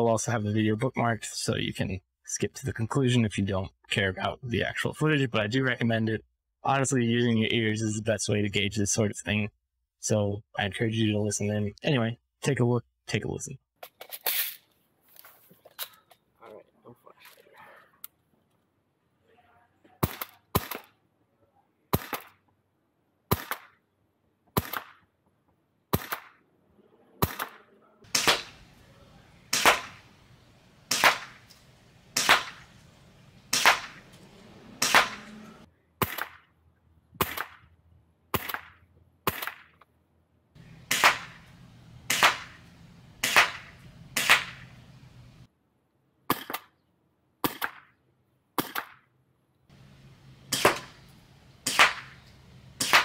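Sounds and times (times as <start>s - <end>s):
airsoft rifle shots: 20.0s - 21.0s, 21.9s - 22.4s, 23.3s - 23.8s, 24.6s - 25.0s, 25.9s - 26.4s, 27.2s - 28.8s, 29.5s - 30.1s, 30.8s - 32.8s, 33.5s - 34.1s, 34.8s - 35.4s, 36.0s - 36.5s, 37.2s - 37.6s, 38.3s - 39.8s, 40.7s - 44.8s, 46.3s - 46.7s, 47.4s - 47.9s, 48.6s - 49.0s, 50.5s - 53.0s.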